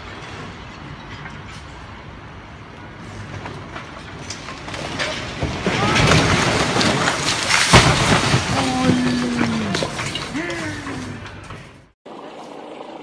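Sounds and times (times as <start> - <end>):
brick wall collapsing: 3.3 - 12.0
loud crash: 4.8 - 10.4.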